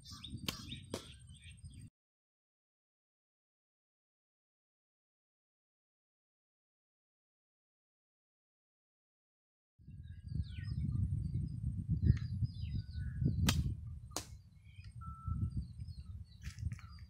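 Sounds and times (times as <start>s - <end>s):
small birds chirping: 0.0s - 1.9s, 9.9s - 17.0s
arrow striking target: 0.4s - 1.2s, 13.4s - 14.4s
low microphone rumble: 9.8s - 17.0s
bowstring snap: 13.4s - 14.4s.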